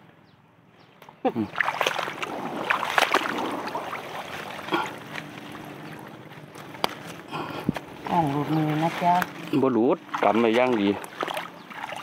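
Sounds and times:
water splashing: 1.4 - 12.0
plants rustling: 1.6 - 12.0
plant stems snapping: 6.6 - 7.8.

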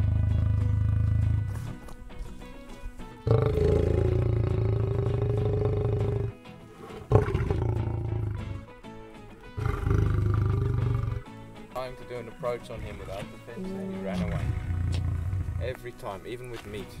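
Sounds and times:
lion roaring: 0.0 - 1.6, 3.2 - 8.6, 9.6 - 11.3, 12.7 - 15.8.

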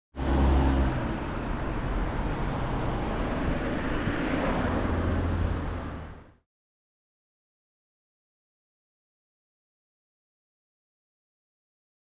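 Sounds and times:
road traffic tyre noise: 0.1 - 6.4.

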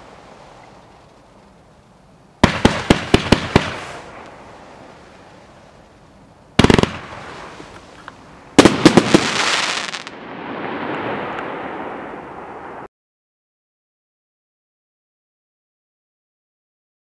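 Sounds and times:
crackling hiss of burning stars: 0.0 - 12.9
sharp firework reports: 2.4 - 5.2, 6.6 - 7.7, 8.6 - 12.8
firework volley: 2.4 - 6.0, 6.6 - 12.9.

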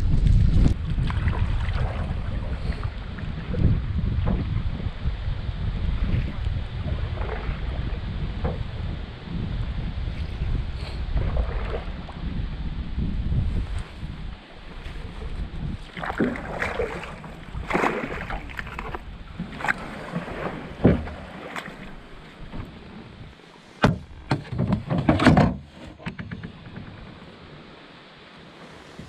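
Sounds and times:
paddles splashing through water: 0.6 - 4.9, 5.8 - 9.1, 10.0 - 12.3, 13.5 - 25.4
sharp knocks: 23.8 - 26.9.

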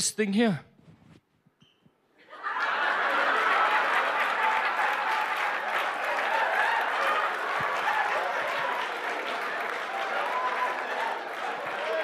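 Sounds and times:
people cheering: 2.3 - 12.0
audience applauding: 2.6 - 12.0.

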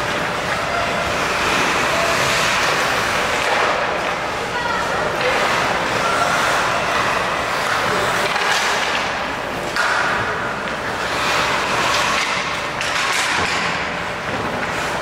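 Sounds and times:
skate blades scraping ice: 0.1 - 3.8, 5.2 - 15.0
sticks hitting puck: 1.5 - 4.2, 7.6 - 15.0.

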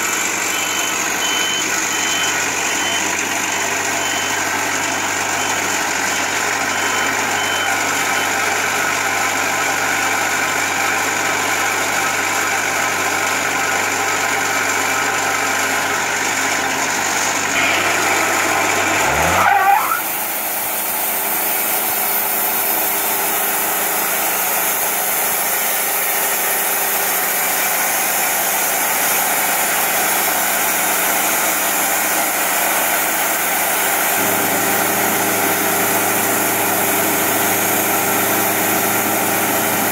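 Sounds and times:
sawmill diesel engine running: 0.0 - 39.9.

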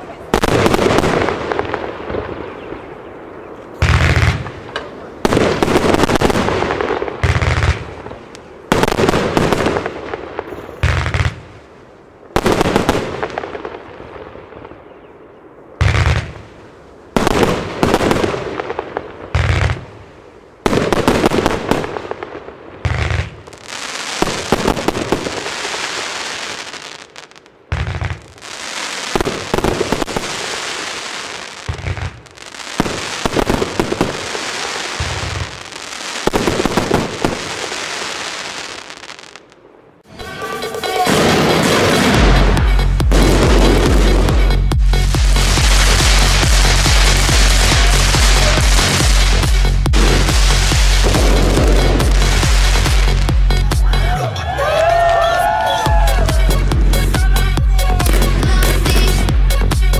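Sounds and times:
firework stars bursting and crackling: 3.8 - 11.7, 12.3 - 14.2, 15.8 - 39.6, 40.5 - 53.8.

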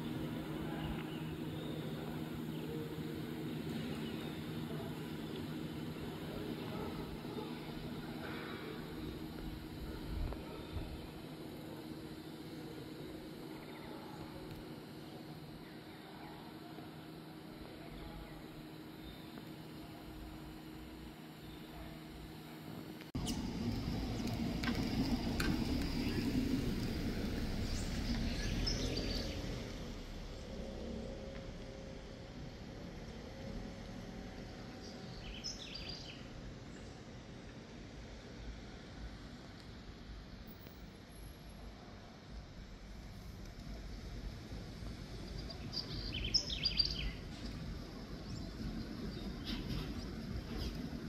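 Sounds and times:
low street rumble: 0.0 - 51.0
low rumble: 23.1 - 34.8
bird chirping: 34.8 - 36.9, 45.3 - 47.6.

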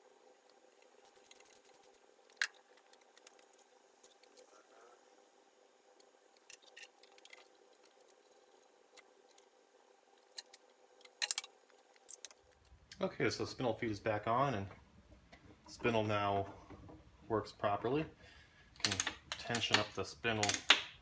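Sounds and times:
faint steady hum: 0.0 - 21.0
small metal parts clinking: 10.4 - 12.4.

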